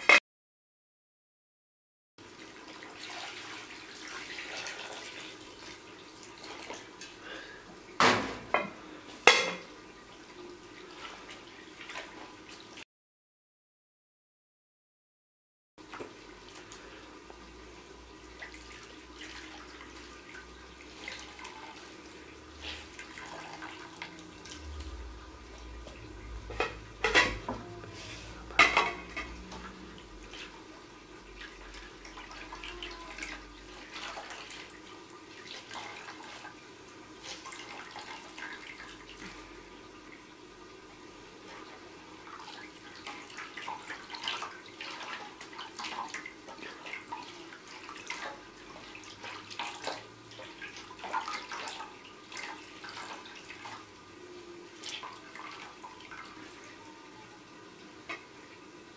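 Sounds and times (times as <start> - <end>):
clanks against metal pot: 8.2 - 9.7
water splashing and dripping into pot: 41.5 - 54.0.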